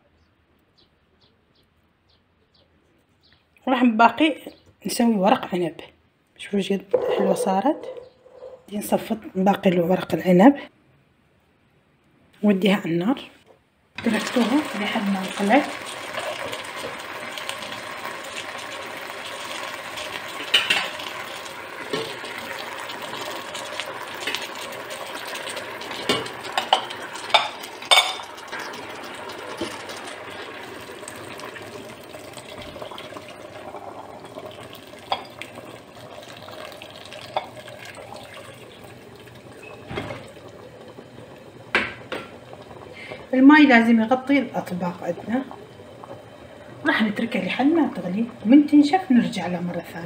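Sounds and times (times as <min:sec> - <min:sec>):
plates clinking against pot: 0:06.9 - 0:08.7, 0:20.5 - 0:21.0, 0:26.0 - 0:28.4, 0:35.1 - 0:35.5, 0:37.3 - 0:37.6
water pouring into a pot: 0:14.0 - 0:50.0.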